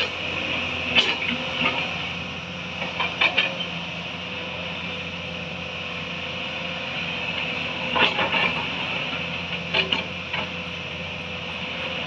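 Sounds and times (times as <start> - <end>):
excavator engine whining: 0.0 - 12.0.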